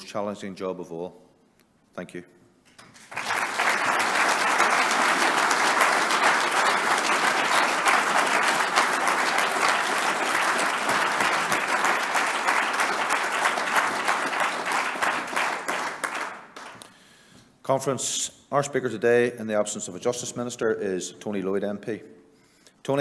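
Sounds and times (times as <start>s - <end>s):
audience applauding: 2.8s - 16.9s.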